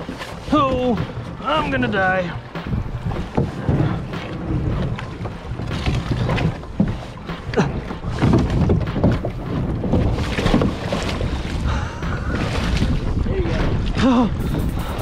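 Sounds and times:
water sloshing around kayak: 0:00.0 - 0:15.0
wind buffeting microphone: 0:00.0 - 0:15.0
leg splashing in water: 0:02.4 - 0:13.1.

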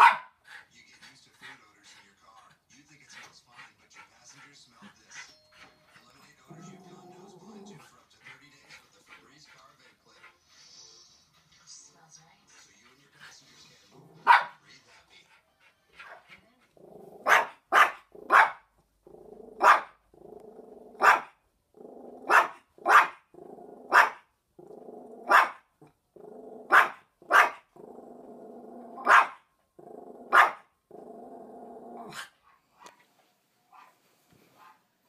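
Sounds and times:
small dog barking: 0:00.0 - 0:00.4, 0:14.2 - 0:14.6, 0:17.2 - 0:18.7, 0:19.6 - 0:20.0, 0:21.0 - 0:21.4, 0:22.2 - 0:23.2, 0:23.8 - 0:24.2, 0:25.2 - 0:25.6, 0:26.6 - 0:27.7, 0:29.0 - 0:29.4, 0:30.3 - 0:30.7
dog growling: 0:06.3 - 0:08.6, 0:13.7 - 0:14.3, 0:16.6 - 0:17.4, 0:19.0 - 0:24.0, 0:24.6 - 0:27.0, 0:27.6 - 0:29.1, 0:29.8 - 0:32.2.

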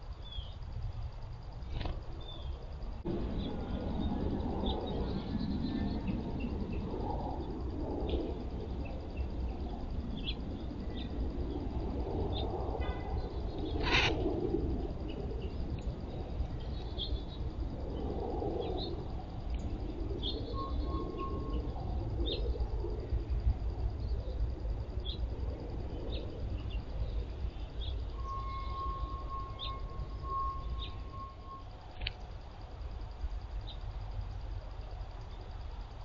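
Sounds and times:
low rumble: 0:02.0 - 0:13.5
harsh bird calls: 0:13.2 - 0:14.2.

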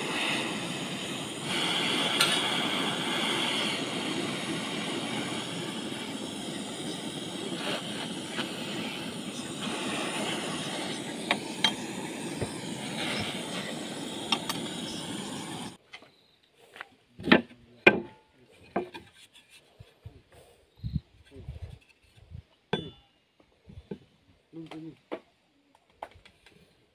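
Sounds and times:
gas blowtorch running: 0:00.0 - 0:15.8.

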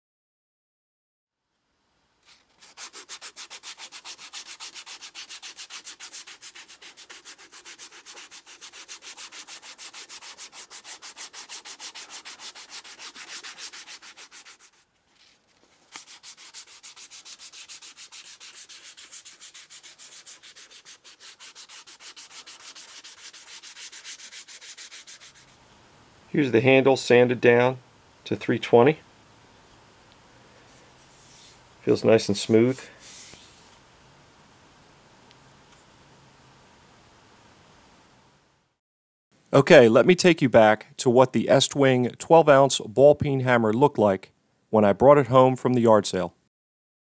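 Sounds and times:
abrasive cloth sanding handle: 0:02.6 - 0:14.9, 0:15.9 - 0:25.6.

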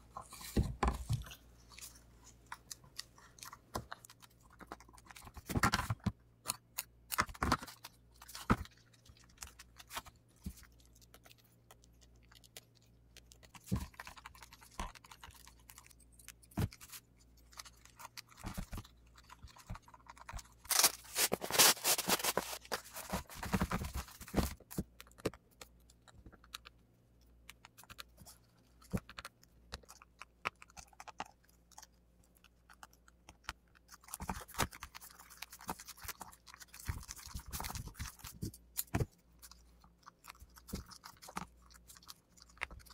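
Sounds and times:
fabric crackling and crinkling: 0:19.4 - 0:24.7.

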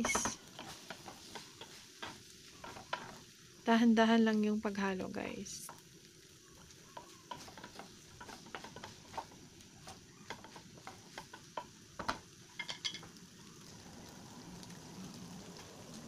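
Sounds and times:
wooden utensils scraping a pan: 0:00.0 - 0:03.3, 0:06.5 - 0:13.1
faint sizzle: 0:00.0 - 0:16.0.

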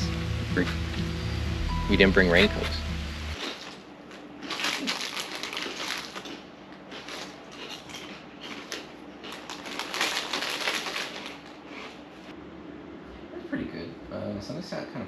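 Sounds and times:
plastic snack bag crackling: 0:04.4 - 0:11.8.

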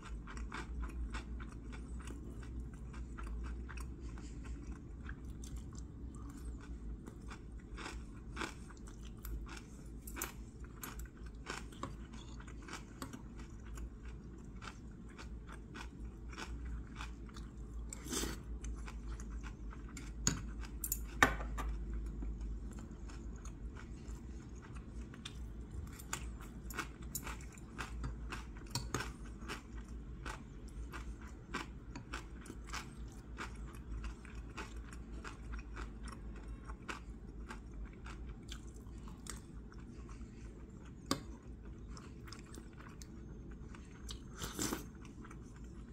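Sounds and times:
chewing and crunching: 0:00.0 - 0:45.9.

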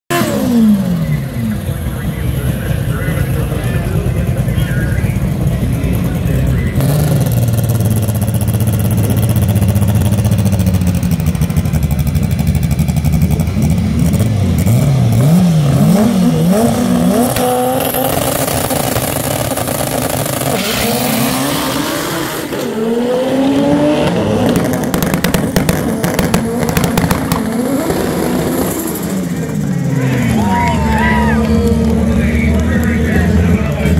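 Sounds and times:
car engine revving: 0:00.1 - 0:33.9
engine crackle: 0:00.1 - 0:33.9
car accelerating through gears: 0:13.0 - 0:33.9.

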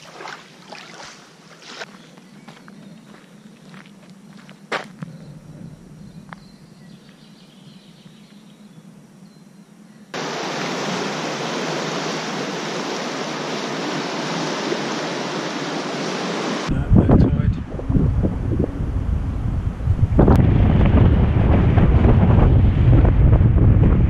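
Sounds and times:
river rushing over rapids: 0:10.2 - 0:16.7.

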